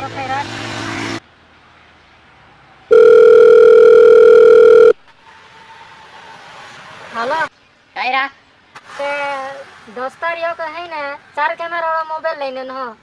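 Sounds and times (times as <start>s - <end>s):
telephone call beep: 2.9s - 5.0s.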